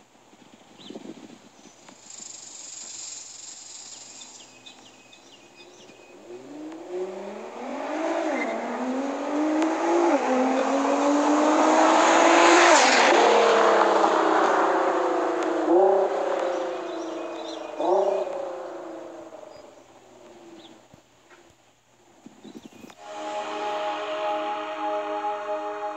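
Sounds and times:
car accelerating hard: 6.0s - 20.7s
car passing loudly: 6.2s - 19.8s, 23.0s - 25.9s.

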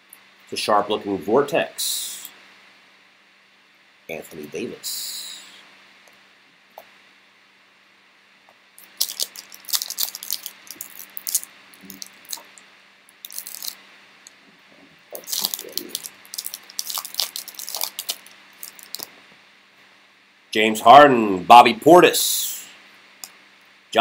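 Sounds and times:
foil wrapper tearing and crinkling: 8.8s - 12.4s, 13.2s - 13.8s, 15.2s - 19.1s.

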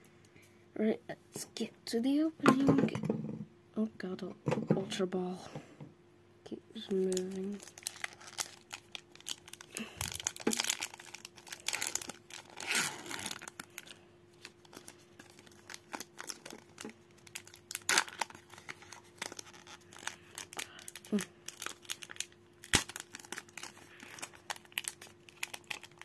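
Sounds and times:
foil wrapper tearing and crinkling: 6.9s - 26.0s.

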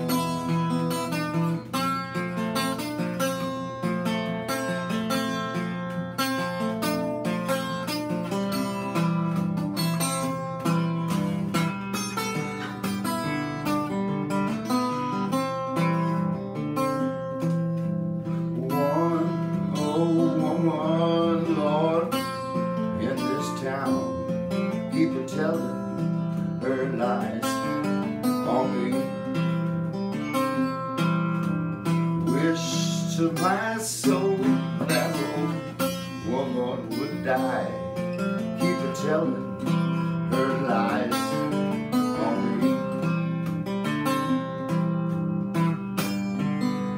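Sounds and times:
acoustic blues guitar: 0.0s - 46.9s
man singing: 18.3s - 29.7s, 32.2s - 43.3s.

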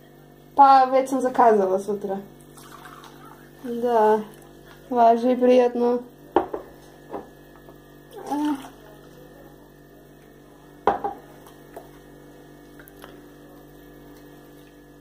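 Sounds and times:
liquid trickling into cups: 2.3s - 5.5s, 8.0s - 14.8s.

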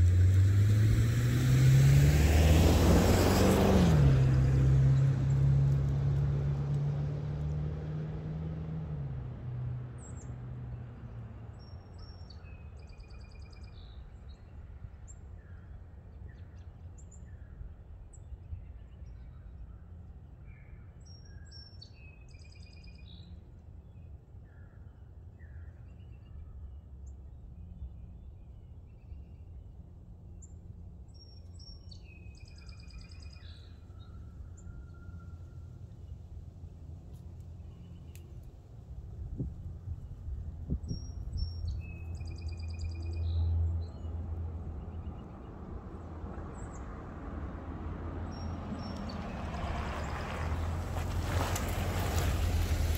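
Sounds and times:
vehicle exhaust driving off: 0.0s - 10.4s, 43.2s - 52.9s
songbird chirping: 9.8s - 52.9s
low outdoor rumble: 26.2s - 52.9s.

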